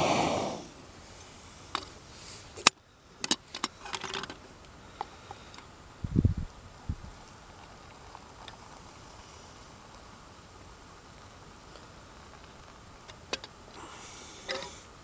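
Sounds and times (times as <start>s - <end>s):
brief hiss: 0.0s - 2.7s.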